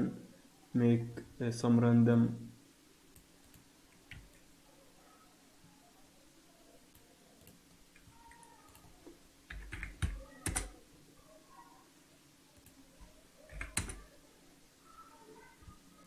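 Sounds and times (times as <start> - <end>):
keyboard and mouse clicks: 13.5 - 14.0.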